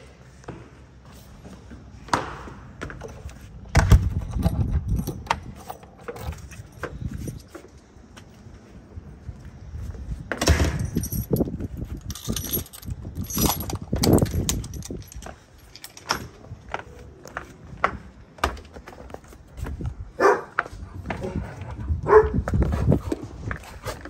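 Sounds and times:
keys jingling: 4.1s - 7.8s, 10.6s - 16.5s.

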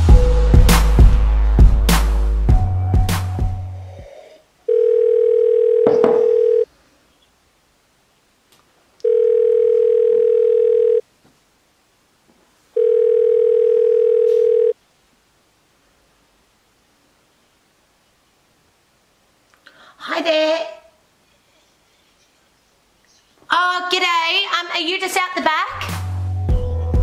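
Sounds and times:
telephone ringback tone: 4.7s - 6.7s, 9.0s - 11.0s, 12.8s - 14.8s.

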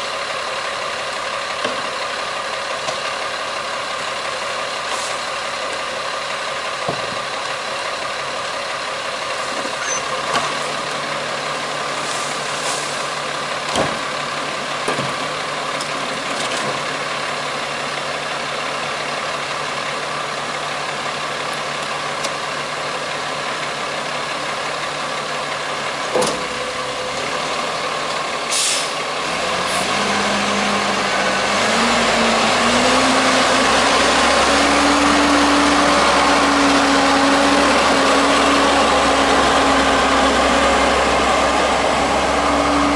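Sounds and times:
diesel truck engine idling: 0.0s - 42.9s
air brake hiss: 4.9s - 5.3s, 12.0s - 13.1s, 28.5s - 29.1s.

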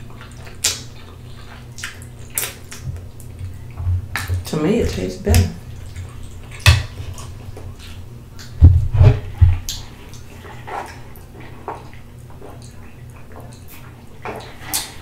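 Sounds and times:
dull thumps: 8.6s - 9.7s.

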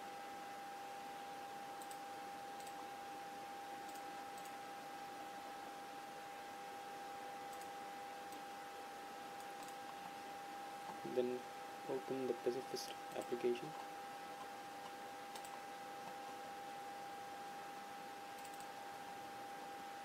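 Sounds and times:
computer mouse clicks: 1.8s - 2.8s, 3.8s - 4.6s, 7.5s - 7.7s, 8.3s - 8.5s, 9.4s - 10.0s, 14.4s - 16.2s, 18.3s - 18.8s.

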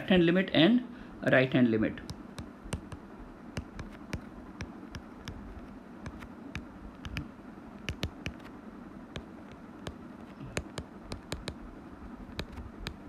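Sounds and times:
faint background hum: 0.0s - 13.0s
stylus tapping on glass screen: 2.0s - 5.4s, 6.0s - 8.4s, 9.2s - 11.6s.

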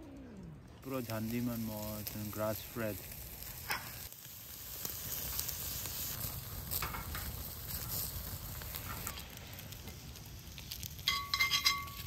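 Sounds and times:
meat sizzling in a pan: 0.9s - 12.0s.

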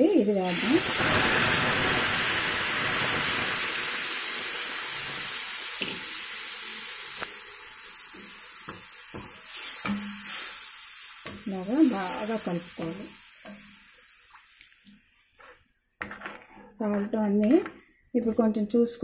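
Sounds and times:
liquid sizzling in hot pan: 0.0s - 15.6s
spoon scraping pan: 15.3s - 18.5s.

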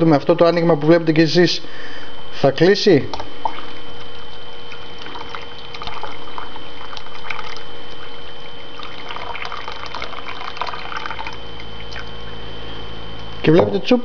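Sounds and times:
water pouring into kettle: 3.4s - 12.4s.

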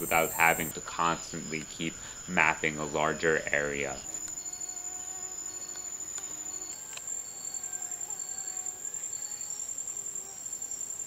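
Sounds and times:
insect trilling: 0.0s - 11.0s.

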